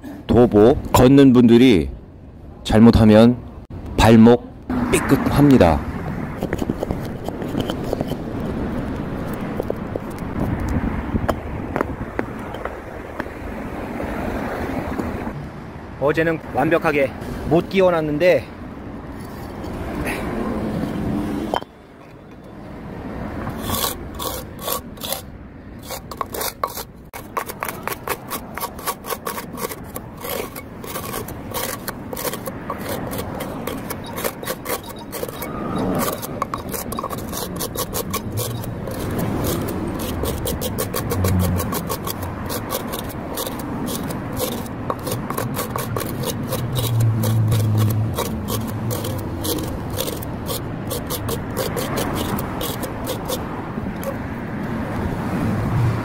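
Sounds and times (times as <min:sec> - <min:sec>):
grit scraping on stone slab: 0:06.4 - 0:08.5, 0:23.5 - 0:54.2.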